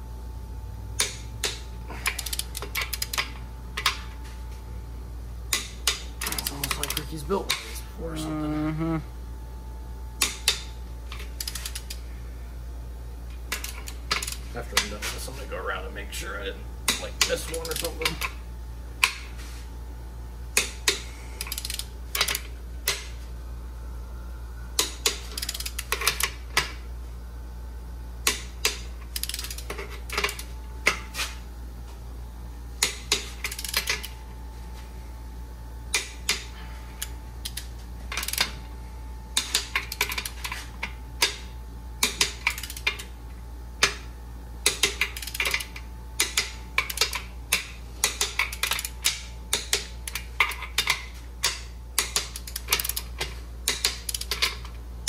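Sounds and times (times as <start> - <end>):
steady low hum: 0.0 - 55.0
torque wrench ratchet clicking: 1.0 - 3.3, 11.4 - 12.0, 20.9 - 22.4, 24.8 - 26.3, 28.3 - 30.5, 32.8 - 34.1, 37.0 - 38.5, 42.0 - 43.1, 44.6 - 53.1, 53.7 - 54.6.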